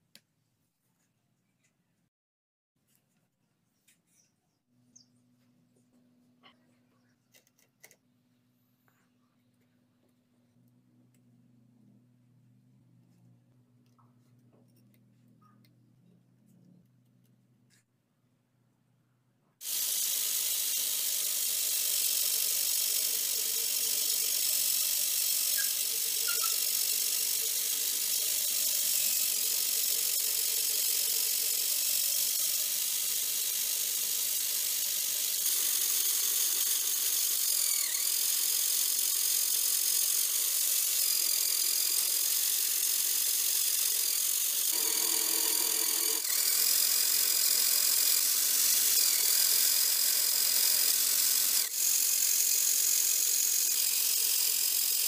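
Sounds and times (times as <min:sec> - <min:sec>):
small electric motor whining: 0:19.6 - 0:55.0.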